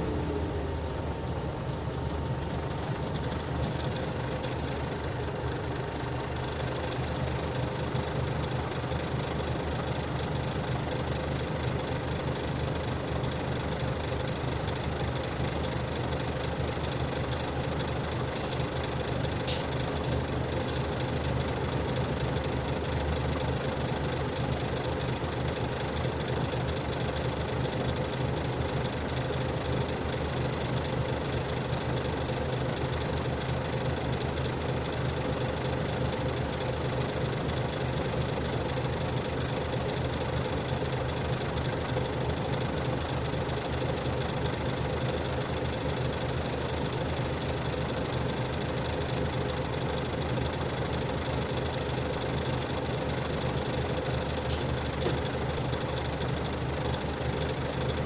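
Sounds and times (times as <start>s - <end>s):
bus diesel engine idling: 0.0s - 58.0s.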